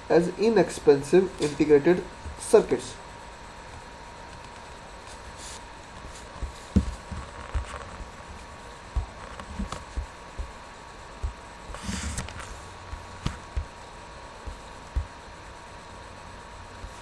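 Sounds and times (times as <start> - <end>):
soft low thumps: 6.2 - 15.3.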